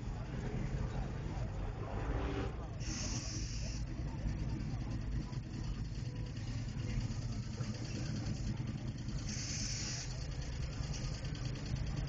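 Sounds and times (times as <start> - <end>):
engine idling: 0.0 - 12.0
short hiss: 2.8 - 3.8, 9.3 - 10.1.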